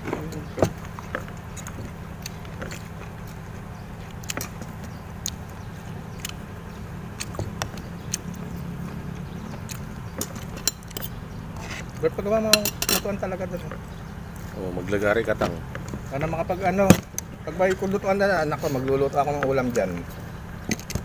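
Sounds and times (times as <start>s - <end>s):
low hum: 0.0s - 21.0s
plates and food clinking: 10.1s - 13.8s.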